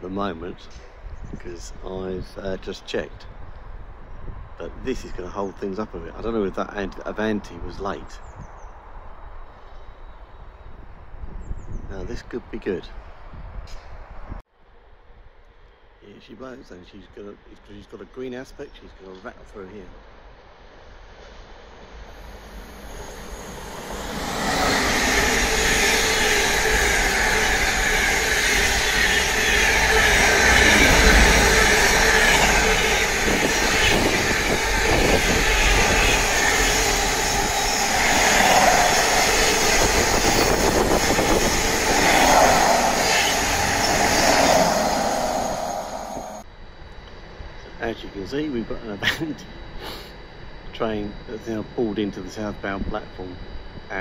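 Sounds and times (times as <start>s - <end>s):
freight train rushing past: 21.7s - 46.5s
steady high tone: 22.1s - 46.4s.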